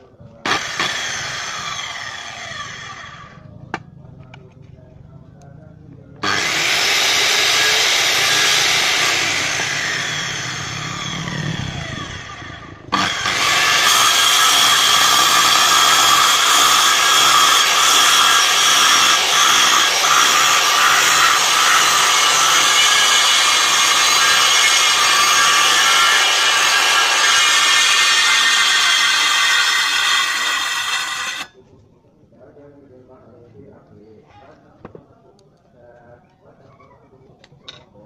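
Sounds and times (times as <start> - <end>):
circular saw motor whine: 6.2 - 31.5.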